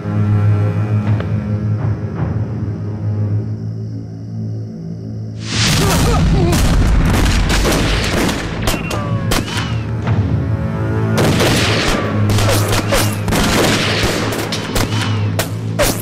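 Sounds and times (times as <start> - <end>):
dramatic film score: 0.0 - 16.0
rifle fire: 6.5 - 9.8, 11.2 - 16.0
bullets ricocheting off stone: 11.4 - 16.0.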